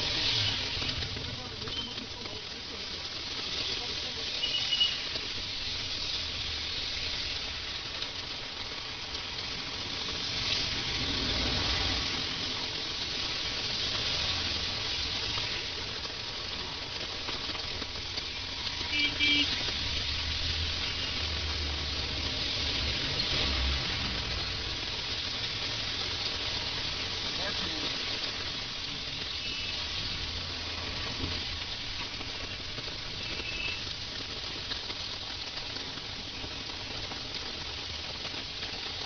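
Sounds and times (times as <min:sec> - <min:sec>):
heavy rain on a street: 0:00.0 - 0:39.0.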